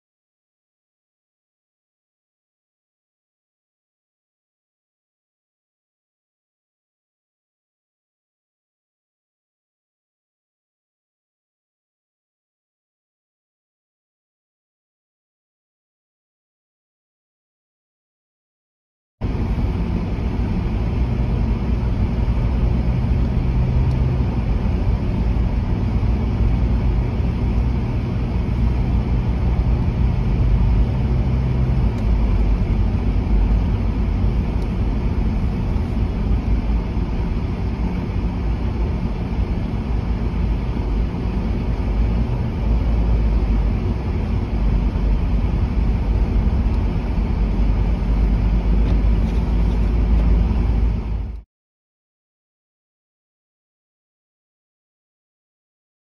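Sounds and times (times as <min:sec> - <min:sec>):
car cabin driving rumble: 0:19.2 - 0:51.4
steady hum: 0:19.2 - 0:51.4.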